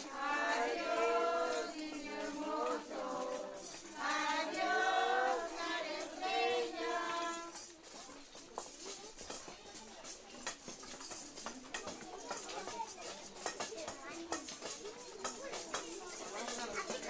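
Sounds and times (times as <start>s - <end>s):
children singing in unison: 0.0s - 7.5s.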